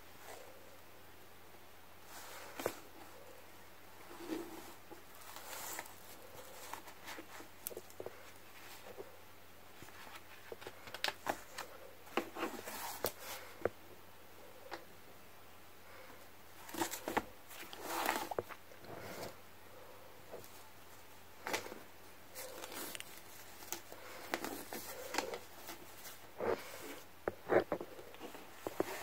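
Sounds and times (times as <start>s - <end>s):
journals handled with taps and rustles: 9.8s - 13.8s.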